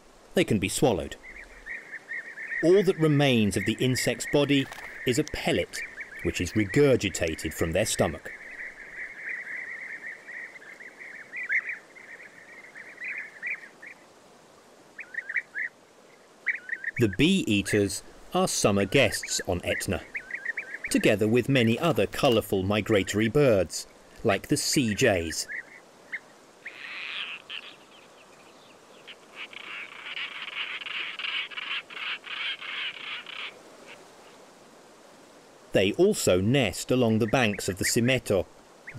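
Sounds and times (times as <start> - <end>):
birds trilled calls: 0.0 - 14.1, 14.9 - 34.4, 37.0 - 38.9
bird rasping calls: 1.2 - 7.5, 25.4 - 27.9, 29.0 - 34.4.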